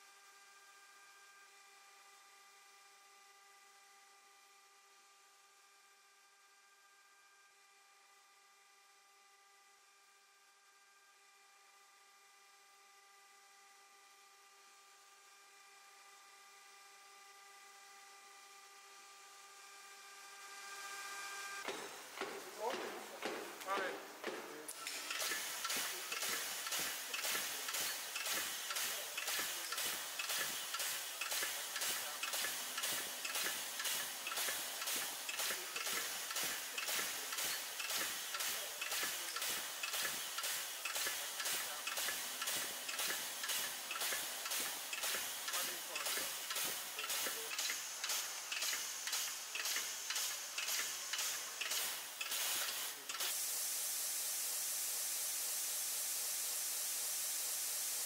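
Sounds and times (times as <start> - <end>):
pneumatic pump exhaust puffs: 21.6 - 58.0
steady air hiss: 21.8 - 56.2.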